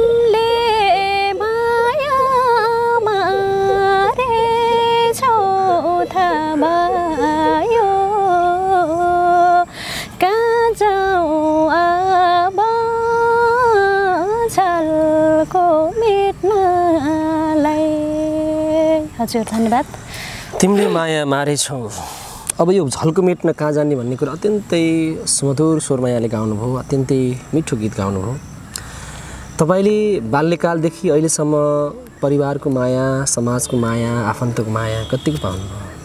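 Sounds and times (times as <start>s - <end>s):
woman singing unaccompanied: 0.0s - 20.5s
woman taking a breath: 9.7s - 10.2s, 20.0s - 20.6s, 28.8s - 29.6s.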